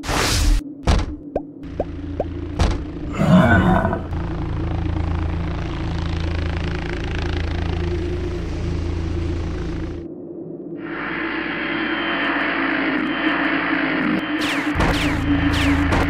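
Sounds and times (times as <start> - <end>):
low rumbling drone: 1.6 - 10.2
cartoon roar: 3.0 - 4.2.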